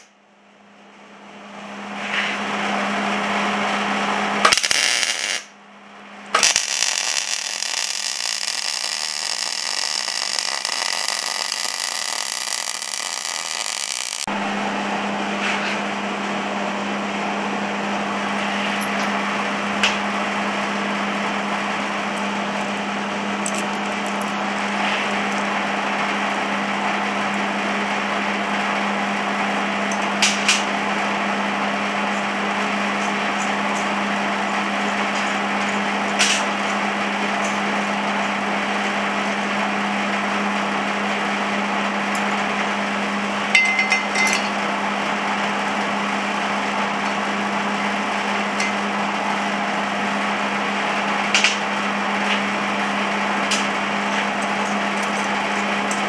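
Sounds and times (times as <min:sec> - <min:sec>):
low hum with hiss: 0:00.0 - 0:56.0
metal bolts clinking: 0:54.4 - 0:56.0.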